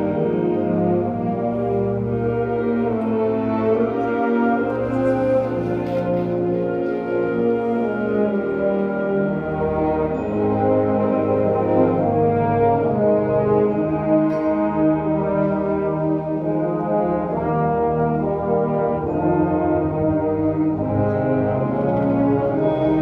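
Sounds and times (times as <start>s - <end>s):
brass marching band chords: 0.0s - 23.0s.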